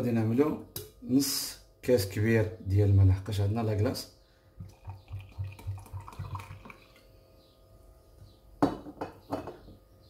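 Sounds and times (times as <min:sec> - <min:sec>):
water pouring into plastic beaker: 0:04.6 - 0:07.1.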